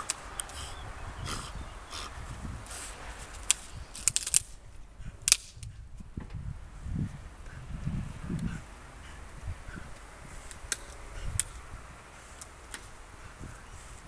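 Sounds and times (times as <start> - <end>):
dry leaves crackling: 2.7 - 4.6
stick snapping: 3.4 - 4.6, 5.3 - 5.7.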